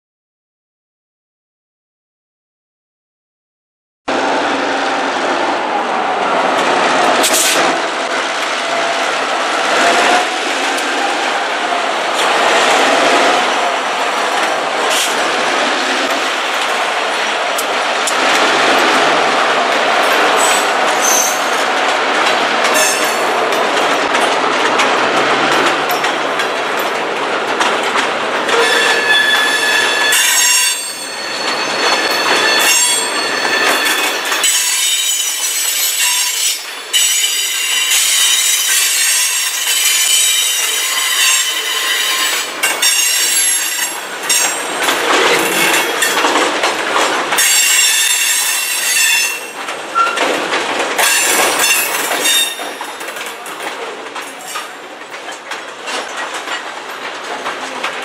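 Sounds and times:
freight train rolling past: 4.1 - 58.0
high-pitched wheel squeals: 20.4 - 21.6, 28.6 - 44.6.

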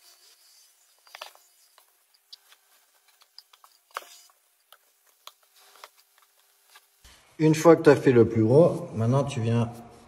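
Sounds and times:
grout float scraping tiles: 0.0 - 6.2.

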